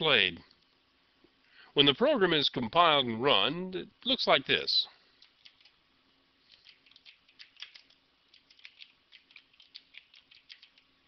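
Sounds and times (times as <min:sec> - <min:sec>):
faint keyboard typing: 0:05.2 - 0:05.8, 0:06.4 - 0:11.0.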